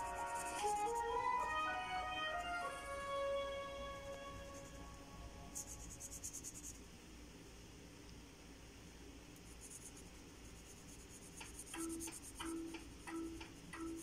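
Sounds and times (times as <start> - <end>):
marker scratching on paper: 0.0 - 1.2, 5.5 - 6.8, 9.5 - 12.8
plucked background music: 0.0 - 5.8, 11.8 - 14.0.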